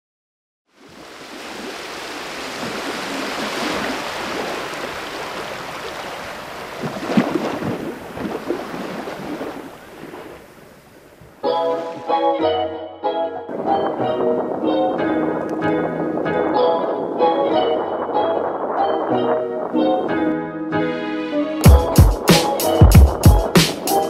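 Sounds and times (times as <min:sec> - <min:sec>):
rushing surf-like noise: 0:00.8 - 0:10.9, 0:13.5 - 0:20.2, 0:21.6 - 0:24.0
pitched music notes: 0:11.4 - 0:24.0.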